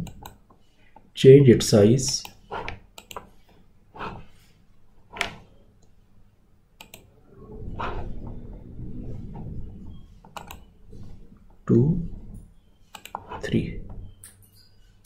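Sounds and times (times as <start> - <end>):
computer mouse clicking: 0.0 - 0.6, 2.1 - 3.4, 6.8 - 7.1, 10.3 - 10.7, 12.9 - 13.4.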